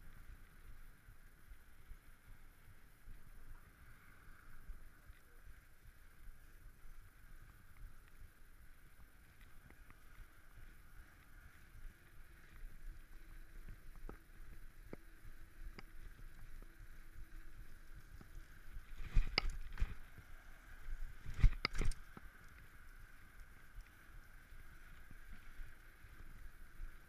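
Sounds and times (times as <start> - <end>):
bike rolling on paving: 5.2 - 27.0
light clicks: 17.4 - 24.3.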